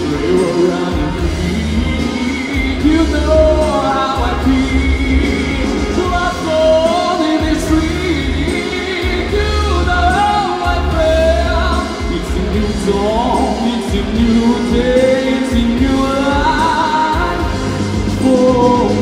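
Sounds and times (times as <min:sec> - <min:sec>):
man singing into a microphone: 0:00.0 - 0:19.0
pop music with pulsing bass beat: 0:00.0 - 0:19.0.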